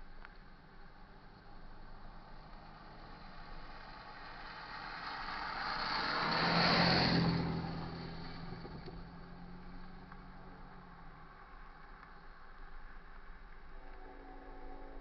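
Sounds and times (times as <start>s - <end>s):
car passing by: 0.9s - 13.1s
low steady hum: 7.8s - 15.0s.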